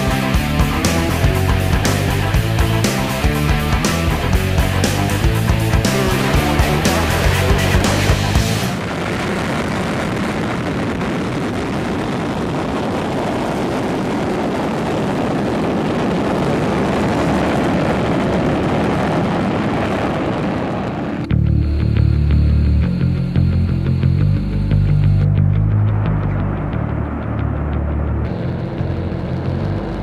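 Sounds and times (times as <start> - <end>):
music: 0.0 - 8.8, 21.3 - 30.0
jet engine rumble and hiss: 0.0 - 21.4.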